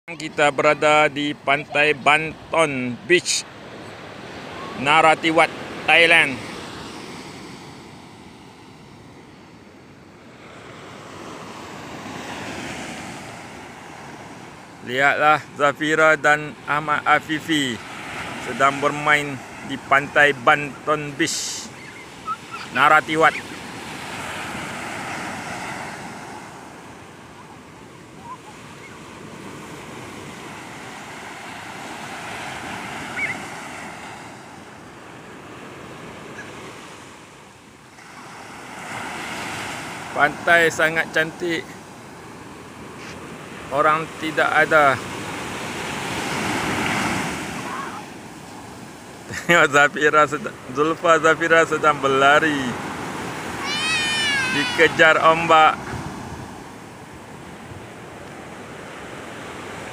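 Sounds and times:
surf breaking on beach: 10.2s - 37.2s, 37.9s - 59.9s
short high cries: 33.1s - 33.5s, 53.5s - 55.0s.

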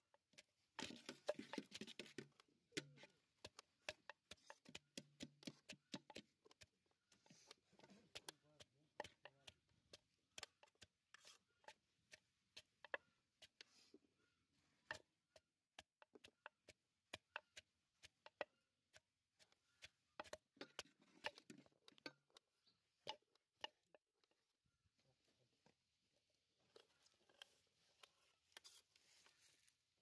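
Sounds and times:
wooden pestle pounding in mortar: 0.8s - 6.7s, 8.1s - 13.6s, 14.9s - 22.4s.

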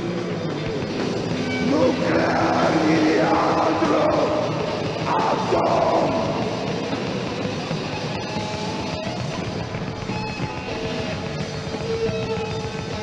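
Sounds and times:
heavy rock music: 0.0s - 13.0s.

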